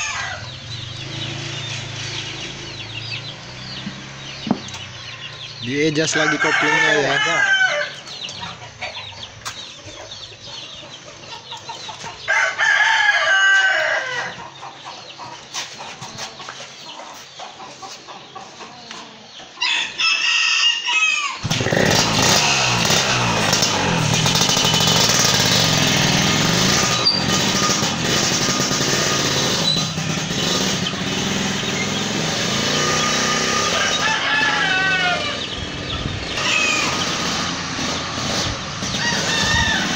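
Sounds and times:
rooster crowing: 0.0 - 0.6, 6.0 - 8.1, 12.3 - 14.4, 19.6 - 25.4, 32.8 - 35.6, 36.3 - 37.2, 38.9 - 39.9
motorcycle engine running: 0.5 - 5.7, 21.4 - 39.9.

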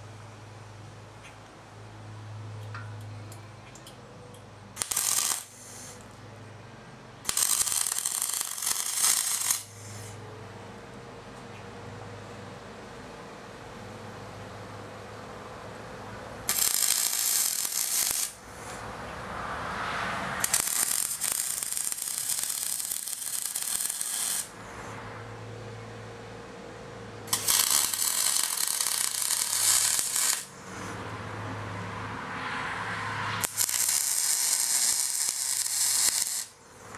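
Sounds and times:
welder arc crackling: 4.8 - 6.0, 7.2 - 10.2, 16.5 - 18.8, 20.4 - 24.6, 27.3 - 30.6, 33.4 - 36.9.

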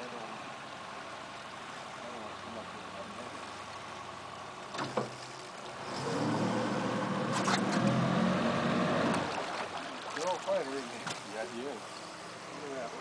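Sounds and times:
boat engine idling: 0.0 - 13.0
sharp knocks in boat: 4.7 - 5.5, 9.1 - 11.3.

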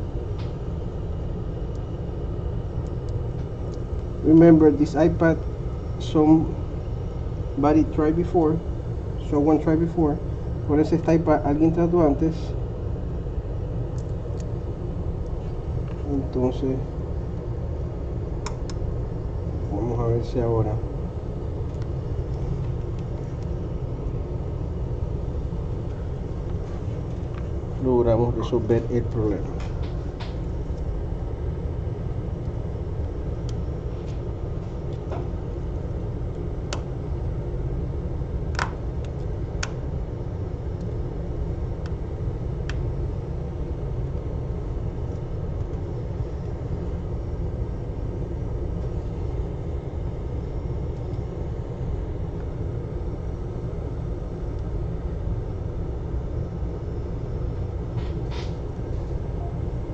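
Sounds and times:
low background rumble: 0.0 - 59.9.

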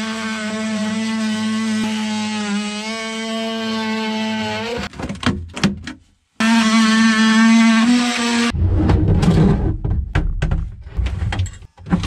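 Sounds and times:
multi-tool high buzz: 0.0 - 4.9, 6.4 - 8.6.

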